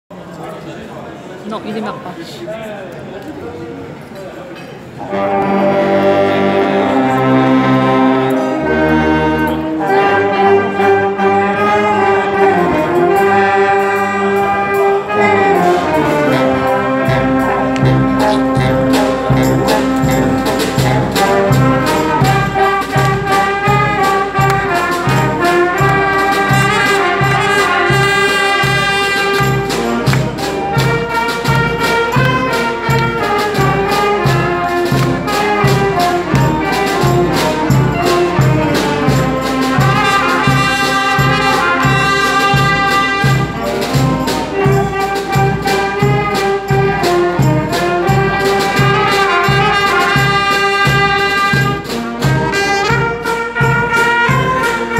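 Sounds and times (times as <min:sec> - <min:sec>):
brass band playing: 0:04.9 - 0:54.9.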